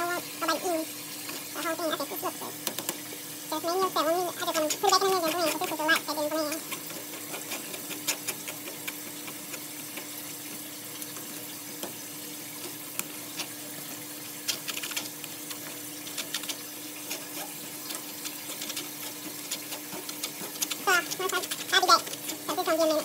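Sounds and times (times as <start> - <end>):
broth simmering: 0.0 - 23.0
spoon scraping wire-mesh strainer: 4.4 - 10.2, 14.5 - 23.0.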